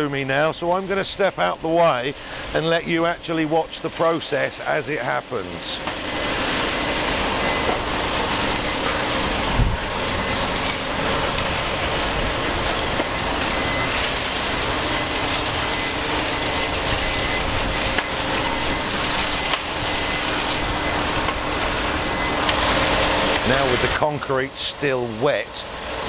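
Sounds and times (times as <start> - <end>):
heavy machinery running: 0.0 - 26.0.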